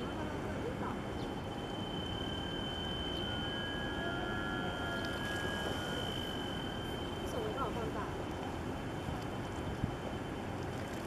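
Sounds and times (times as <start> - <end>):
thin high-pitched tone: 0.0 - 8.6
lower steady tones: 0.0 - 10.7
outdoor background noise: 0.0 - 11.0.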